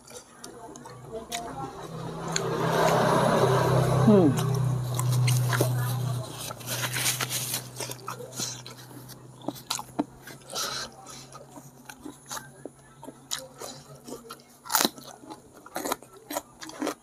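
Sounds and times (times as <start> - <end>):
chewing and mouth sounds: 4.4 - 17.0.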